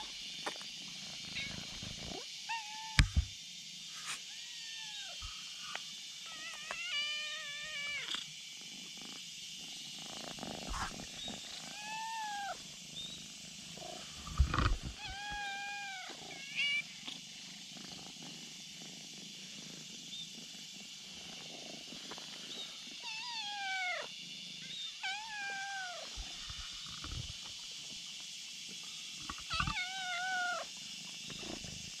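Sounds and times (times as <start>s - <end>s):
cats meowing: 1.3s - 1.7s, 4.2s - 5.3s, 6.3s - 8.2s, 11.6s - 12.6s, 14.4s - 16.9s, 23.0s - 24.1s, 24.8s - 26.2s, 29.4s - 30.7s.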